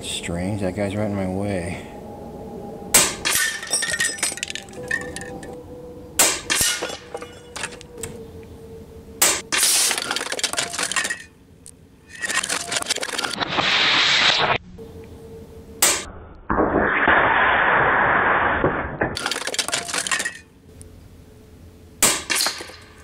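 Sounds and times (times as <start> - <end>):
metal cans clinking and clattering: 3.3 - 5.5
hissing noise: 13.4 - 14.6.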